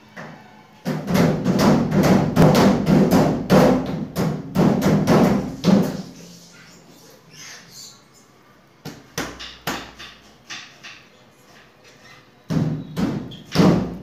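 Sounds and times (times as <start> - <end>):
hands slapping cabinet door: 0.9 - 6.0, 8.8 - 11.0.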